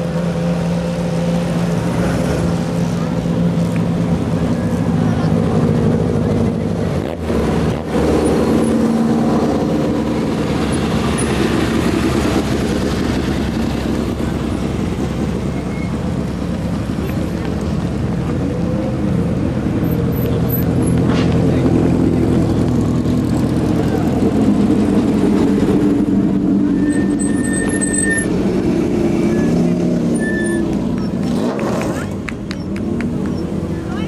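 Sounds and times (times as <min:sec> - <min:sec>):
race car engines at low revs: 0:00.0 - 0:34.0.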